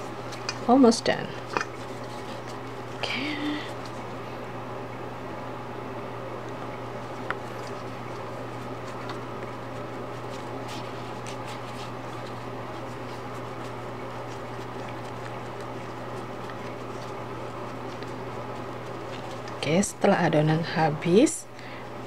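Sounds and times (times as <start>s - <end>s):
steady low hum: 0.0s - 22.0s
hands patting dough: 7.1s - 20.0s.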